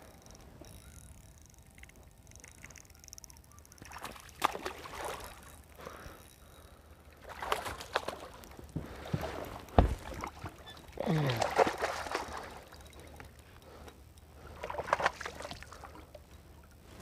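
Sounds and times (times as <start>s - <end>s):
water slapping against boat hull: 7.3s - 10.6s.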